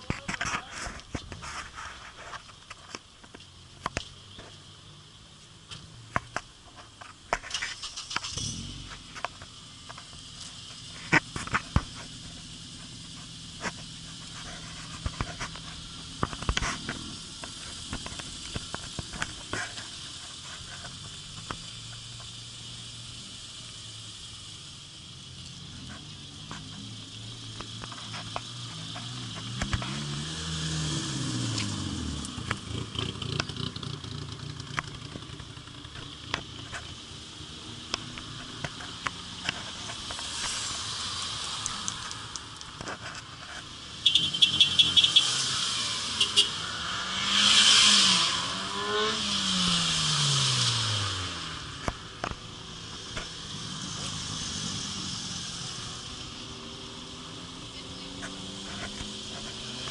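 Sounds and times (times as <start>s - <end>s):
car engine idling: 0.0s - 30.3s
car driving past: 28.4s - 35.8s, 44.2s - 51.9s.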